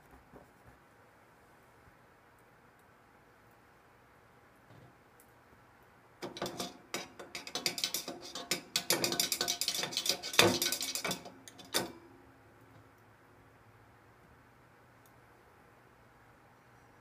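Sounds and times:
rod clattering in a metal can: 6.2s - 12.0s.

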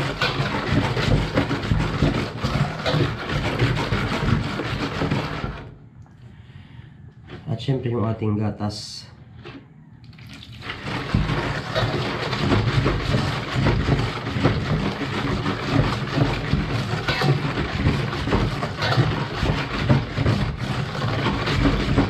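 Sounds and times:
whisk rattling in metal bowl: 0.0s - 5.6s, 10.4s - 22.0s
milk pouring: 10.0s - 20.0s.

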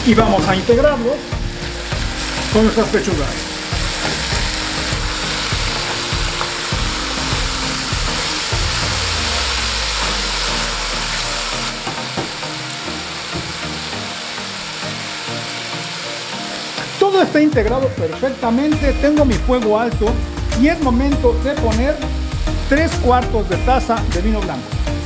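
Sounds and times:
chicken sizzling in a pot: 0.0s - 25.0s.

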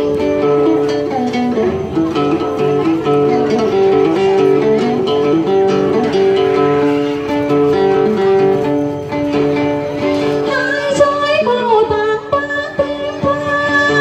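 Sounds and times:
long held backing notes: 0.0s - 14.0s
plucked lute melody: 0.0s - 14.0s.

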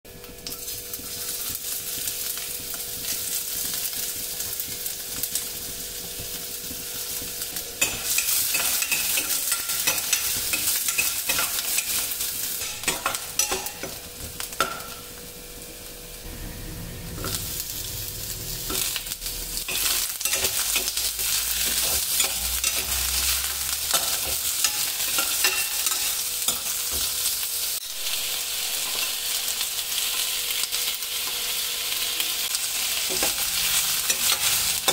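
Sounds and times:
onion sizzling in oil: 0.1s - 34.9s.

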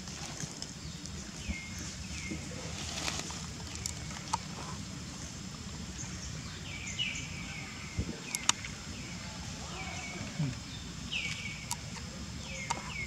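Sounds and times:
steady high hiss: 0.0s - 13.0s
birds chirping: 0.3s - 13.0s
sharp clicks: 8.3s - 8.7s.

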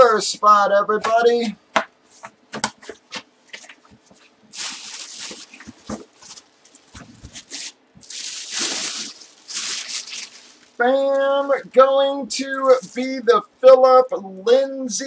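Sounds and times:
plastic bag rustling and crinkling: 4.5s - 11.6s, 12.5s - 13.2s.

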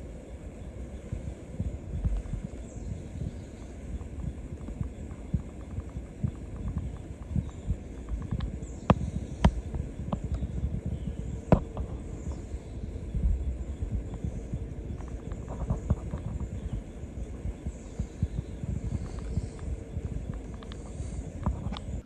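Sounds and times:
camera handling rumble and thumps: 2.0s - 22.0s
sharp clicks: 18.4s - 22.0s.

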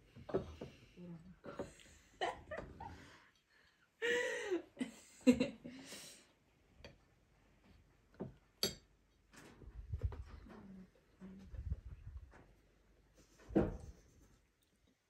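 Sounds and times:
knife clinking on ceramic plate: 8.6s - 8.9s.

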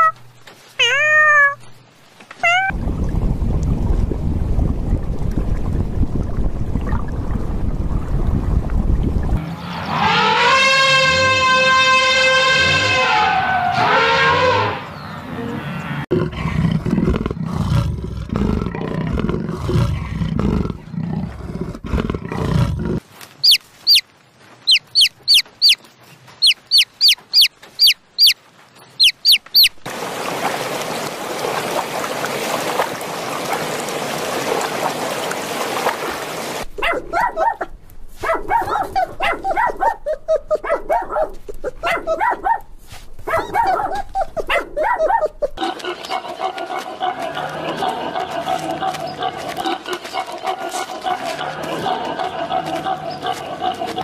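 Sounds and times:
chick peeping: 23.4s - 24.0s, 24.6s - 29.8s
puppies yipping and whining: 26.4s - 28.4s.

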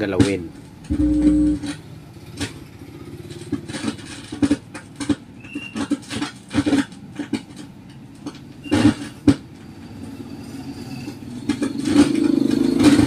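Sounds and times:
amplifier speaker crackling and popping: 0.9s - 1.8s.

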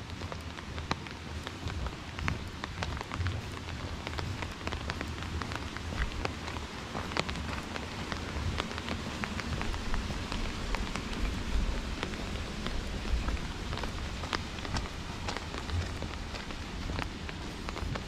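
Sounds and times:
raindrops tapping close by: 0.0s - 18.0s
steady rain hissing: 0.0s - 18.0s.

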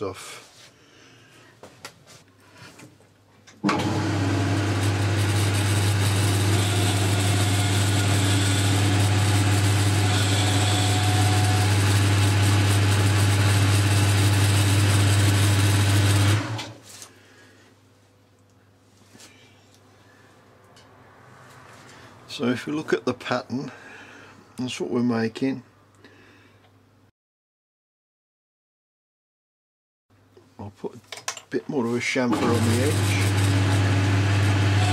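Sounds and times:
metal lathe running: 3.7s - 16.6s, 32.3s - 34.9s.

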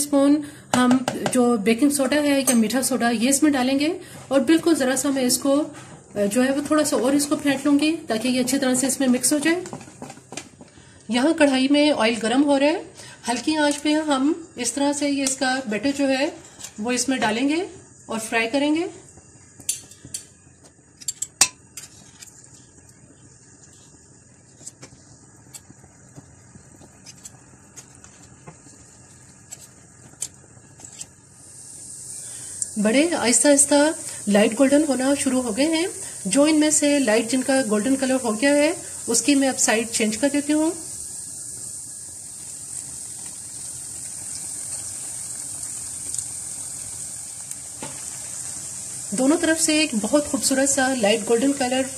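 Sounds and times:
batter sizzling in oil: 0.0s - 51.9s
metal spoon clinking on pan: 2.4s - 2.8s.

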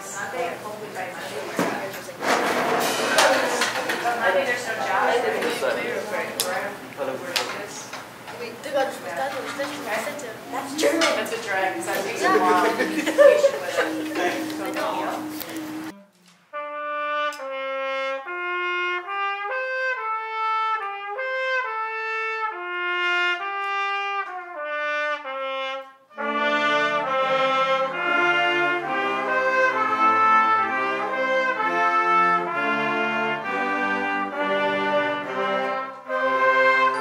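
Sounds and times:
band playing: 1.4s - 37.0s
trumpets playing melody: 10.5s - 37.0s.

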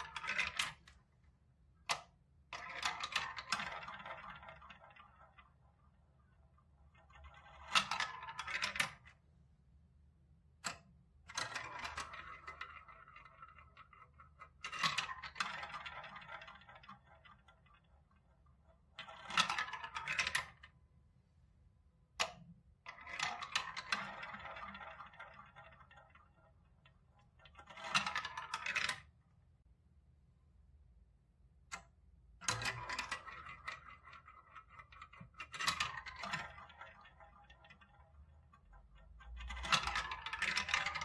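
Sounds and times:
balls clacking together: 0.0s - 1.0s, 31.7s - 41.0s
plastic balls rattling through tubes: 0.0s - 1.2s, 1.8s - 9.3s, 10.7s - 20.8s, 22.2s - 29.2s, 31.7s - 41.0s.

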